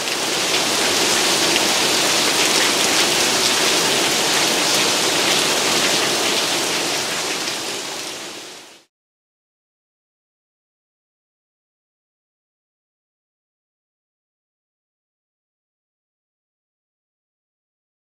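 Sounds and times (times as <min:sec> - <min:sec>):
rain on wet street: 0:00.0 - 0:08.9.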